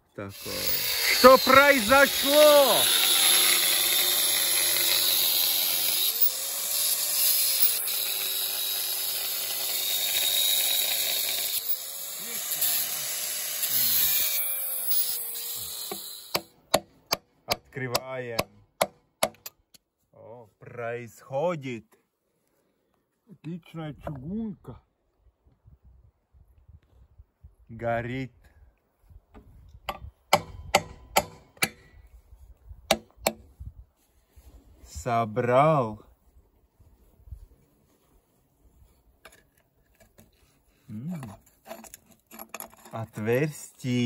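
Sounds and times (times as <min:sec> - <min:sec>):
angle grinder cutting metal: 0:00.3 - 0:16.5
hammer striking metal: 0:29.9 - 0:31.8.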